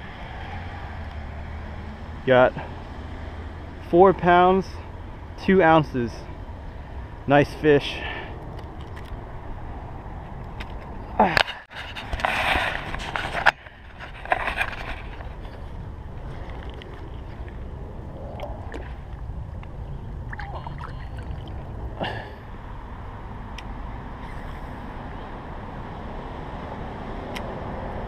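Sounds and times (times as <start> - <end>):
low outdoor rumble: 12.7 - 28.0.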